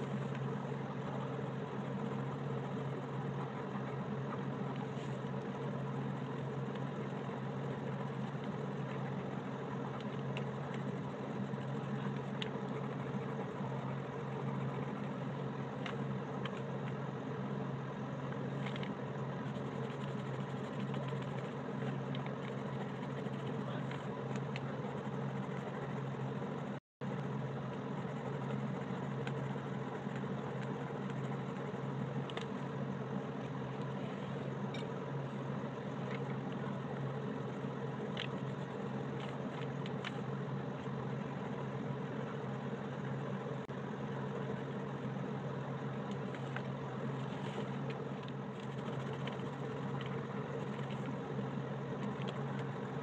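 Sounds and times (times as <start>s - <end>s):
low motor hum: 0.0s - 53.0s
pencil scratching on paper: 0.1s - 16.6s, 19.4s - 32.1s, 48.5s - 51.0s.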